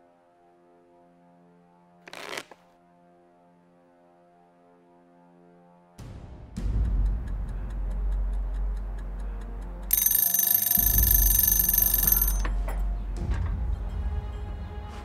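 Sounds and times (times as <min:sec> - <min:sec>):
rapid clock-like ticking: 0:06.6 - 0:12.5
shrill alarm ringing: 0:09.9 - 0:12.5.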